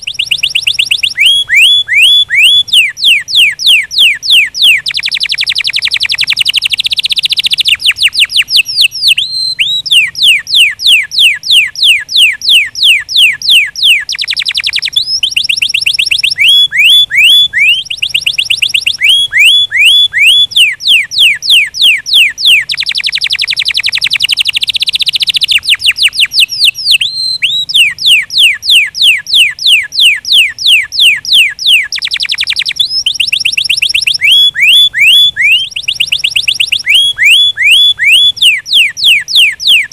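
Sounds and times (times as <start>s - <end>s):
canary singing: 0.0s - 39.9s.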